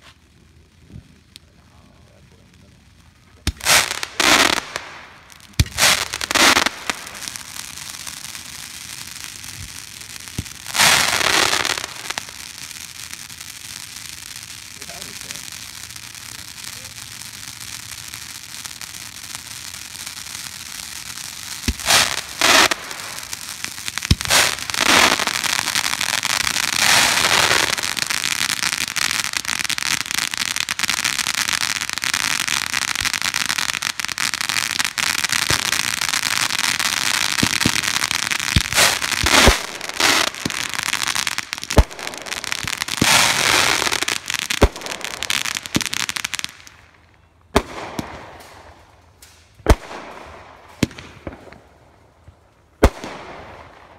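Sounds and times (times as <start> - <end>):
fireworks popping and crackling: 0.0 - 53.9
firework fountains hissing: 3.0 - 46.7
firework shot firing: 21.6 - 28.9, 35.3 - 41.1, 52.8 - 53.8.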